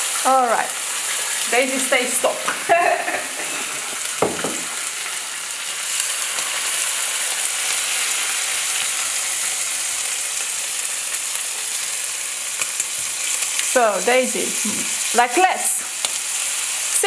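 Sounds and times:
bacon sizzling in frying pan: 0:00.0 - 0:17.0
short knock: 0:04.2 - 0:04.7.

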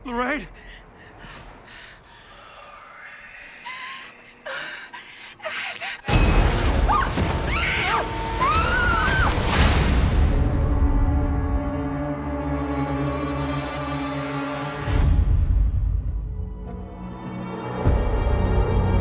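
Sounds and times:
scary music blast: 0:06.1 - 0:12.6.

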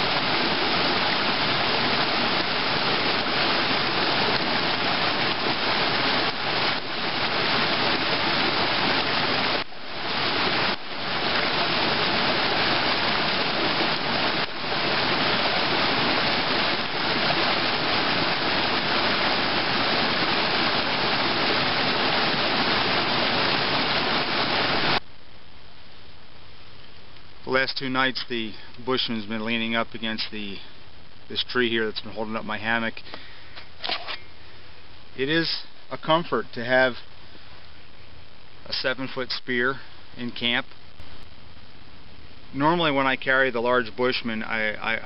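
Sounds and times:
flowing water rushing: 0:00.0 - 0:25.0.

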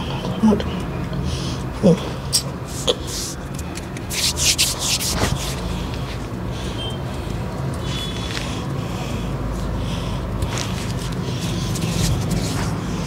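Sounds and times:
skin rubbing on skin: 0:02.6 - 0:06.3, 0:10.4 - 0:12.8.

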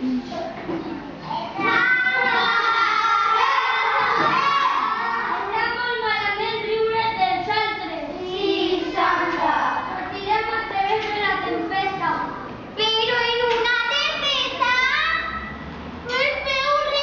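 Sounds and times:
children singing: 0:01.6 - 0:05.8.

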